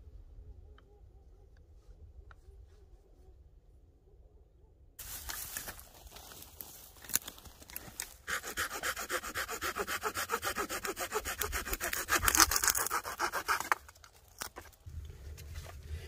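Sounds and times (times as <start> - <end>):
hand saw cutting wood: 8.2 - 13.9.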